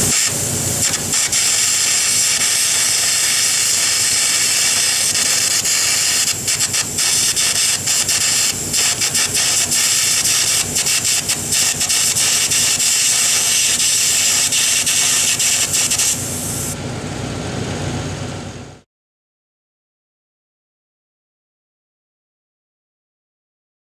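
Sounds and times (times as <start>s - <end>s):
electric arc hissing and crackling: 0.0s - 16.8s.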